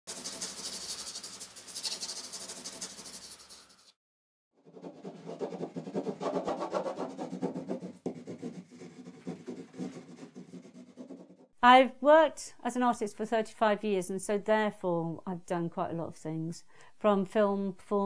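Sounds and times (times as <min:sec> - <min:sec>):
pencil scratching on paper: 0:00.1 - 0:03.9, 0:04.6 - 0:11.5.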